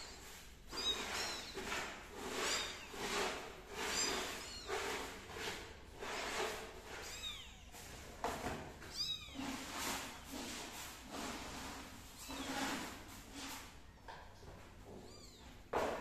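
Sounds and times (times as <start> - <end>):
kittens mewing: 0.7 - 1.6, 3.8 - 4.7, 7.0 - 7.9, 8.9 - 9.7.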